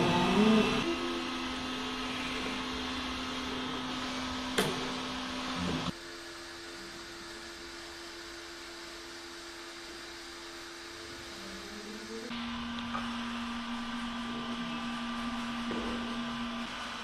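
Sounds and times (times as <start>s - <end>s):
small electric motor whirring: 0.0s - 2.8s.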